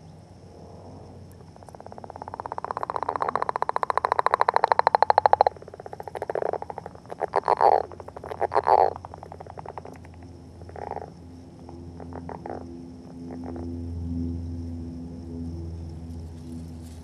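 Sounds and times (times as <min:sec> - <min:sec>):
frog calling: 0:00.9 - 0:14.0.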